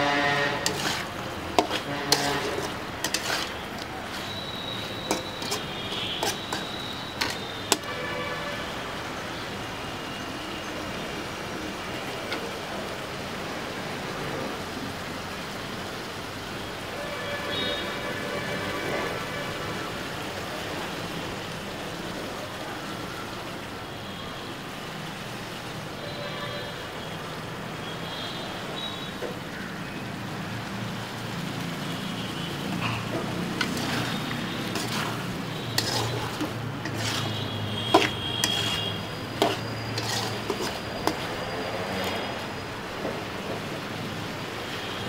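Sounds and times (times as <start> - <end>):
metal spatula scraping pan: 0.0 - 8.1, 32.9 - 42.4
chicken sizzling in a pan: 0.0 - 8.6, 28.8 - 42.6.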